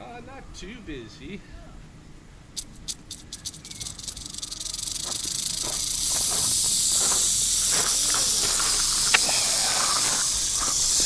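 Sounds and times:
rattlesnake rattling its tail: 2.6 - 11.0.

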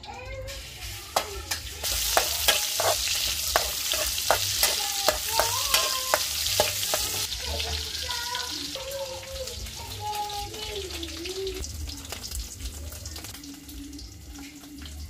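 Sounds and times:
meat sizzling in hot oil: 0.5 - 15.0
metal spatula scraping pan: 1.2 - 7.7.

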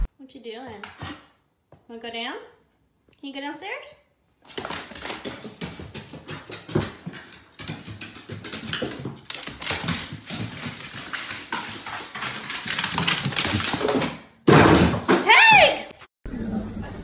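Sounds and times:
clattering and knocks: 4.5 - 15.2.

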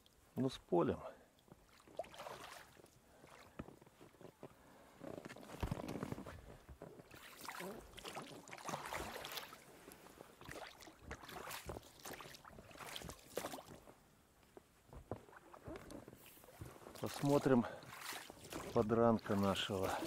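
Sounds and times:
oars splashing in water: 1.5 - 3.8, 7.0 - 13.9, 16.2 - 20.0.

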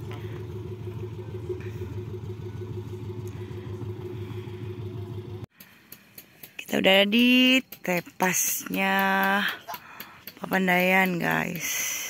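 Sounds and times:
van engine idling: 0.0 - 5.5.

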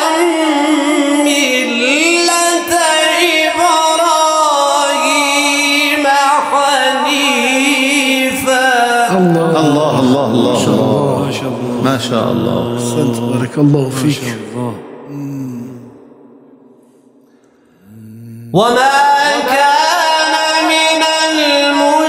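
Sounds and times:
man chanting recitation: 0.0 - 16.0, 17.8 - 22.0
man speaking: 9.2 - 16.0.

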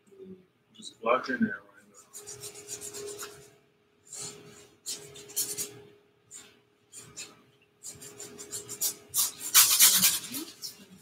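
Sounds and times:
paintbrush scrubbing on canvas: 2.0 - 3.5, 4.1 - 5.8, 6.4 - 11.0.

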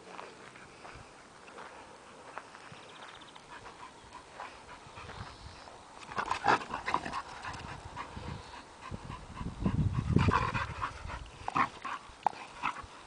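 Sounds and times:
dog panting: 3.4 - 5.7, 6.4 - 13.0.

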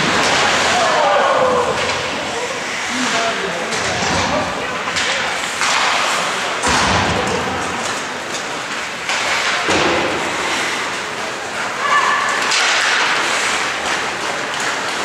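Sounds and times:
skates scraping over ice: 0.0 - 6.6, 7.2 - 15.0
sharp knocks of sticks and puck: 3.7 - 10.9, 12.4 - 15.0.

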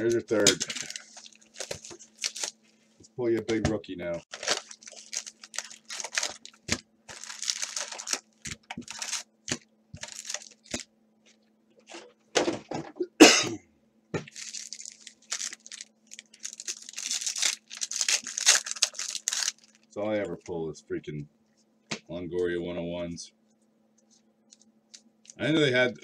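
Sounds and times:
wrappers and cardboard crinkling: 0.0 - 2.6, 4.2 - 10.8, 14.3 - 19.9.

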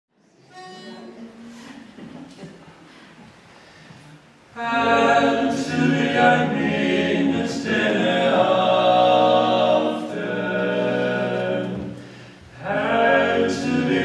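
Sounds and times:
male quartet singing a cappella: 4.6 - 14.0.

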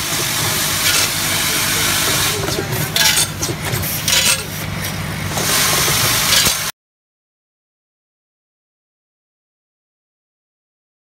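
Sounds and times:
packing machine humming: 0.0 - 6.7.

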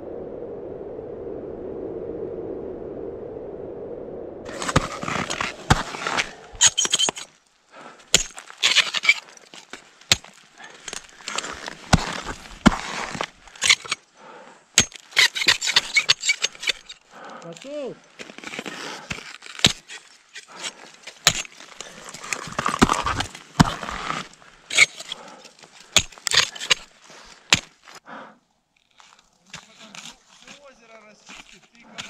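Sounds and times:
ice tools striking ice: 4.5 - 7.4, 8.0 - 14.0, 14.8 - 28.0, 28.8 - 32.0
ice chipping and breaking: 4.5 - 7.5, 8.1 - 14.0, 14.8 - 28.0, 28.8 - 32.0.

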